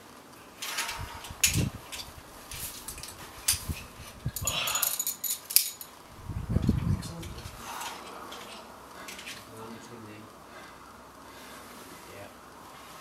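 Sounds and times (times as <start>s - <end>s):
person grunting with effort: 4.4s - 5.0s
forceful exhalations: 4.4s - 5.1s, 7.5s - 9.5s.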